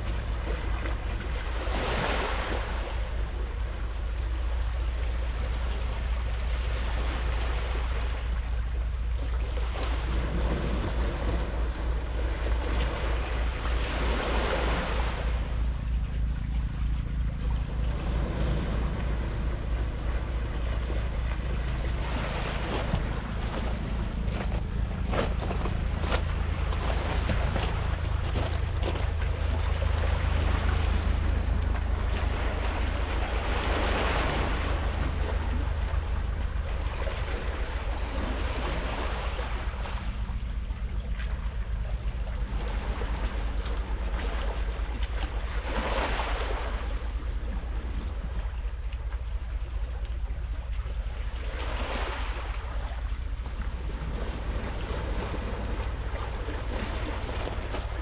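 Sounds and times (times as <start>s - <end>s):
steady low rumble: 0.0s - 58.0s
waves washing onto pebbles: 21.7s - 39.9s, 54.5s - 58.0s.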